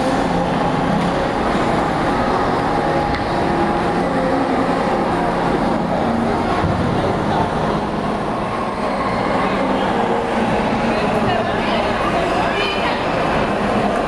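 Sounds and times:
continuous background rumble: 0.0s - 8.8s
echoing crowd voices: 0.0s - 14.0s.

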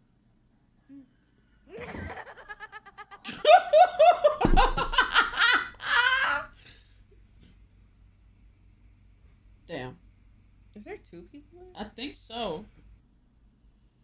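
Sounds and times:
woman giggling: 1.7s - 6.5s
woman laughing heartily: 1.7s - 6.6s.

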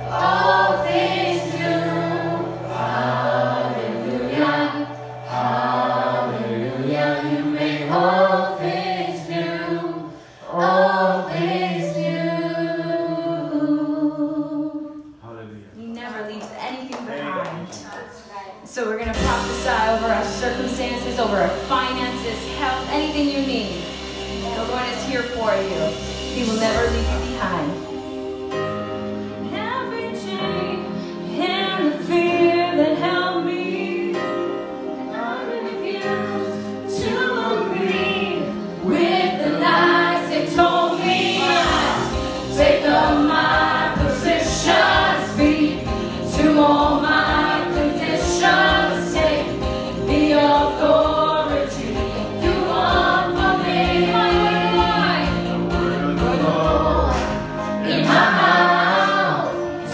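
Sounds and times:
man and woman singing: 0.0s - 15.2s, 29.4s - 59.9s
bass: 18.8s - 34.5s, 36.1s - 59.9s.

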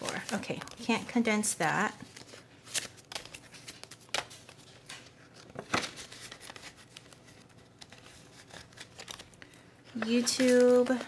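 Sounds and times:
paper rustling: 0.0s - 11.0s
plastic crinkles: 0.0s - 11.0s.

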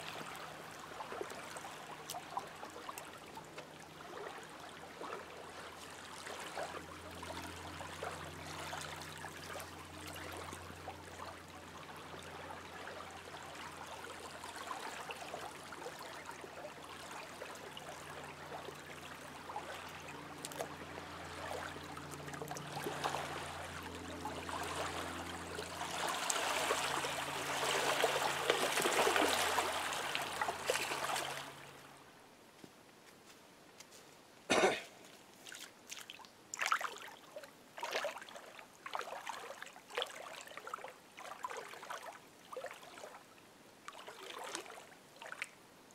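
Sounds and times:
waves lapping on lake shore: 0.0s - 32.0s, 35.3s - 43.2s, 43.8s - 45.6s
faint low hum: 0.0s - 35.4s.

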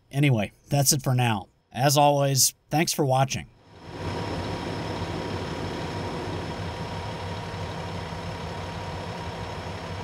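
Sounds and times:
faint steady whine: 3.1s - 10.0s
locomotive engine rumbling: 3.6s - 10.0s.

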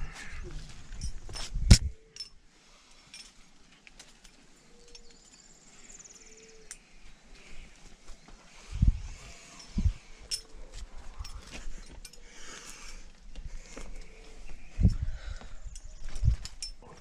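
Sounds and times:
carabiner metallic jingle: 0.9s - 2.4s, 4.0s - 5.5s, 9.3s - 12.3s, 15.6s - 17.0s
climbing gear clicks: 9.5s - 17.0s.

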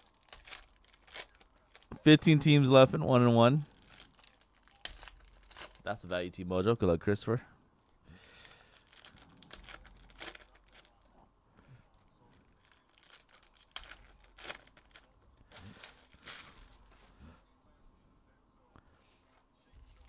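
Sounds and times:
foil wrappers crinkling: 0.0s - 2.0s, 3.6s - 6.0s, 8.4s - 11.1s, 12.2s - 17.1s
cards being handled: 12.4s - 17.1s.

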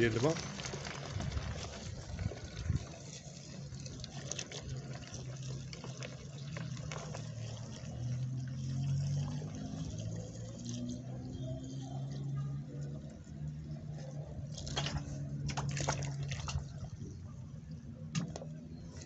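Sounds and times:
hose water pouring into bucket: 0.0s - 12.3s, 14.4s - 17.2s.

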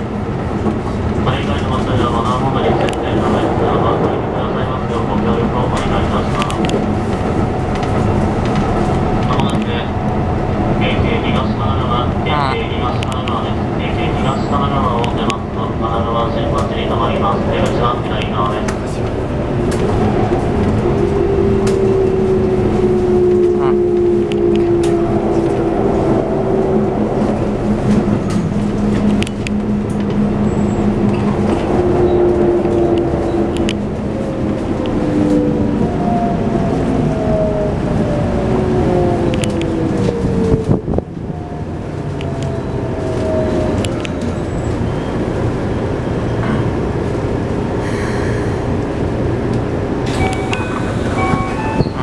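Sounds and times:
wheels rumbling on rail: 0.0s - 52.0s
electronic chime tones: 50.2s - 52.0s.

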